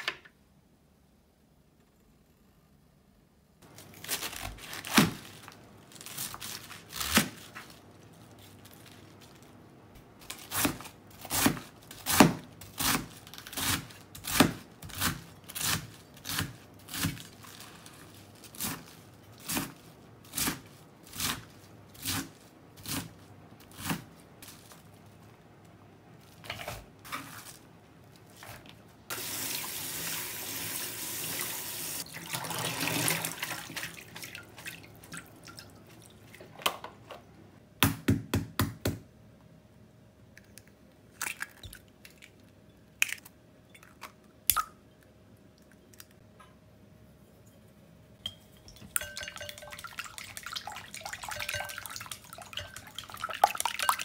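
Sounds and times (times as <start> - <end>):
faucet running water: 29.1 - 34.3, 48.7 - 54.0.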